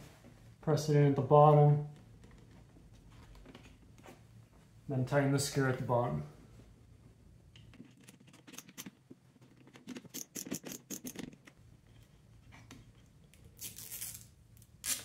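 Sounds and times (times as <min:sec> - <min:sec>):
screwdriver clicks and scrapes: 0:09.6 - 0:11.5.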